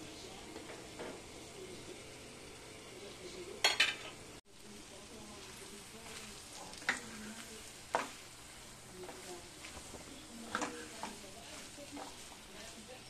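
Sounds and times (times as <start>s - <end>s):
faint steady sizzle: 0.0s - 13.0s
spatula stirring in a pan: 0.0s - 13.0s.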